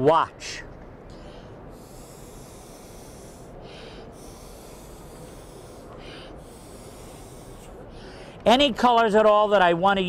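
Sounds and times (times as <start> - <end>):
quick breath in: 1.1 - 7.3, 7.9 - 8.4
airbrush air hissing: 1.2 - 8.4.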